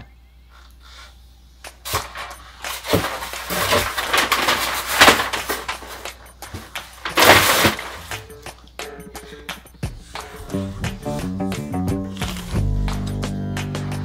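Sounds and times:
packaging rustling: 0:01.8 - 0:08.3.

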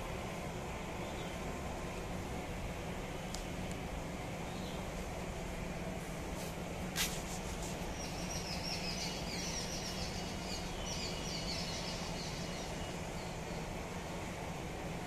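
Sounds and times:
steady low hum: 0:00.0 - 0:15.0
small birds twittering: 0:01.0 - 0:01.4, 0:04.4 - 0:04.9, 0:07.8 - 0:13.8.

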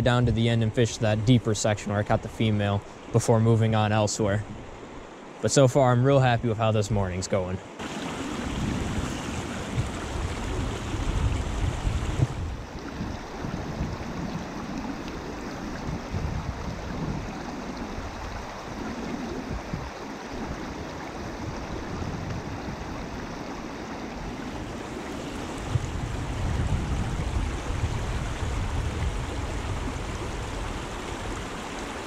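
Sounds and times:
river water flowing over gravel: 0:05.4 - 0:32.0
wind buffeting microphone: 0:07.8 - 0:32.0.

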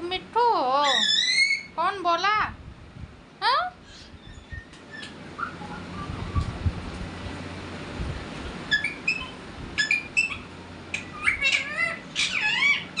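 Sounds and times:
parakeet chirping: 0:00.8 - 0:01.8, 0:03.9 - 0:06.2, 0:08.7 - 0:13.0.

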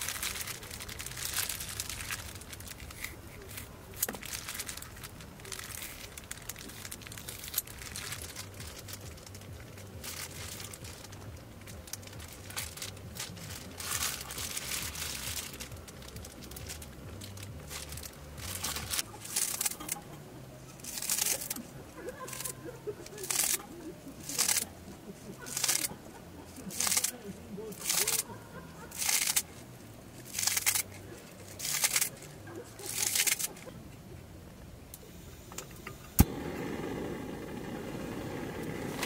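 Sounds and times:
plastic gloves crinkling: 0:00.0 - 0:33.8
low steady hum: 0:00.0 - 0:39.0.

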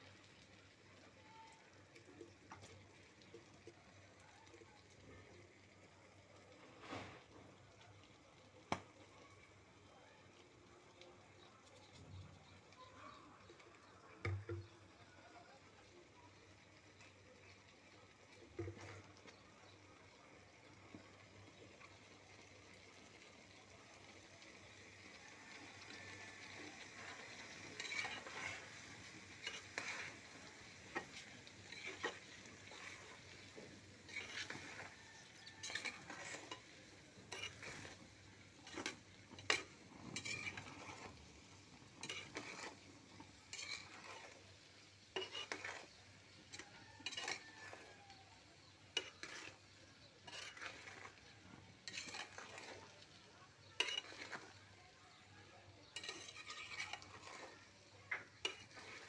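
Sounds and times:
frying in oil sizzle: 0:00.0 - 0:59.0
spatula scraping a pan: 0:06.6 - 0:07.5, 0:16.7 - 0:19.8, 0:22.9 - 0:59.0.

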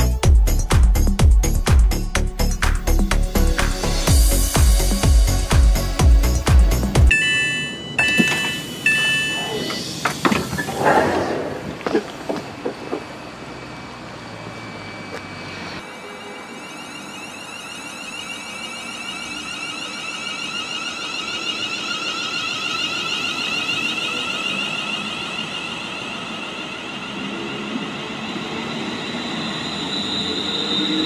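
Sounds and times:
electric train whine: 0:00.2 - 0:31.0.

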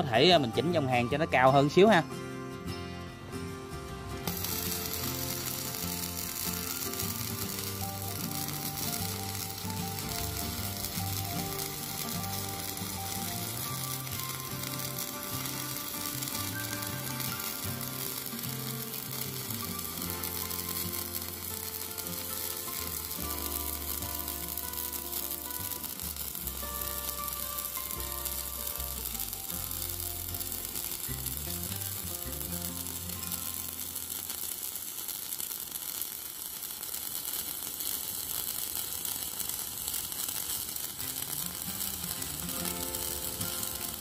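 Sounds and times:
welding arc crackling: 0:04.1 - 0:44.0.

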